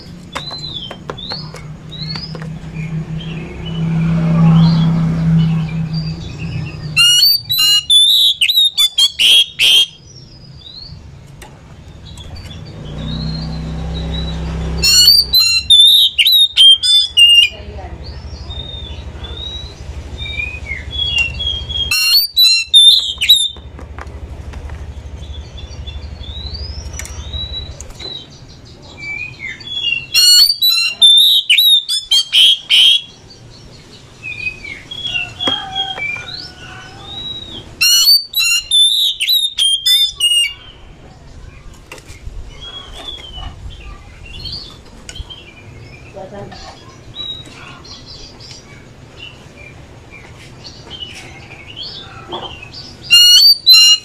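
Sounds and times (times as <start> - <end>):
bird chattering song: 0.0 - 11.1, 11.8 - 23.7, 24.8 - 54.0
bird whistles and chirps: 4.4 - 10.8, 12.1 - 17.5, 18.6 - 23.6, 29.0 - 33.2, 34.3 - 40.8, 52.7 - 54.0.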